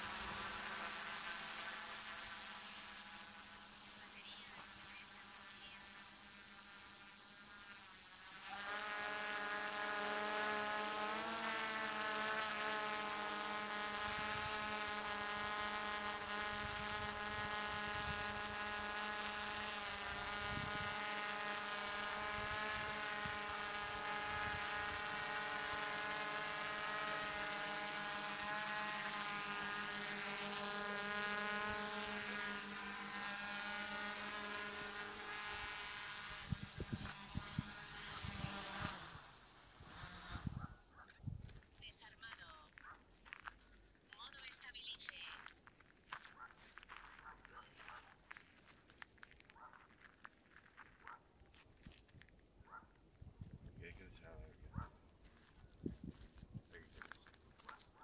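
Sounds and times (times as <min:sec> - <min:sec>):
quadcopter propellers buzzing: 0:00.0 - 0:40.8.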